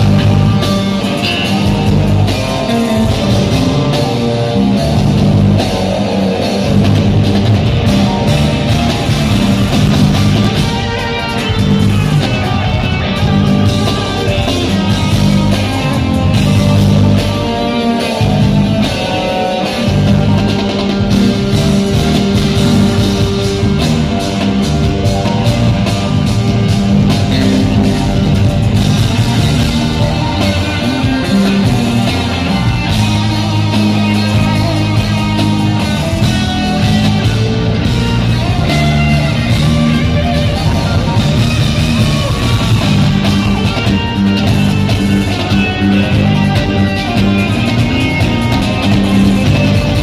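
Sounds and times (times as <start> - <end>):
drum kit beat: 0.0 - 50.0
electric guitar lines: 0.0 - 50.0.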